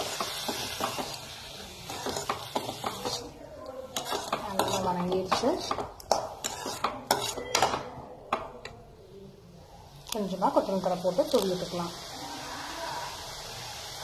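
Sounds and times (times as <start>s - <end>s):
metal spatula scraping metal pan: 0.0s - 7.9s
faint sizzle: 0.0s - 14.0s.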